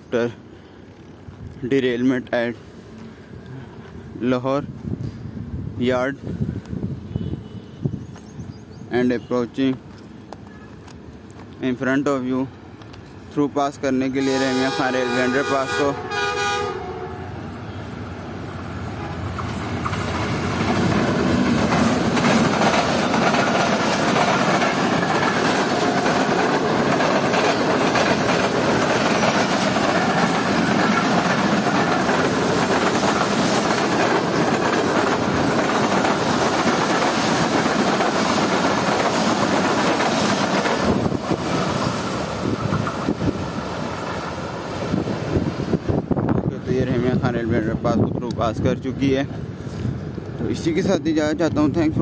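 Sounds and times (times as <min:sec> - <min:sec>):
train wheels clattering on track: 0:18.6 - 0:45.8.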